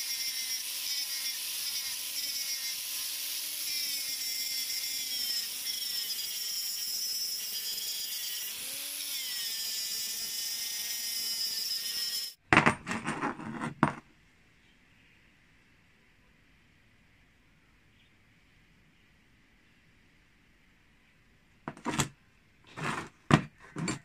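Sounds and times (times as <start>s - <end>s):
angle grinder grinding metal: 0.0s - 12.4s, 22.7s - 23.1s.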